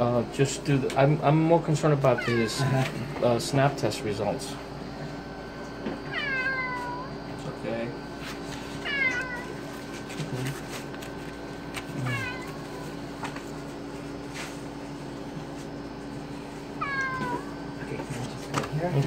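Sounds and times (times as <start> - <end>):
cat meowing: 2.1 - 3.0, 6.1 - 7.1, 8.8 - 9.6, 12.0 - 12.8, 16.8 - 17.5.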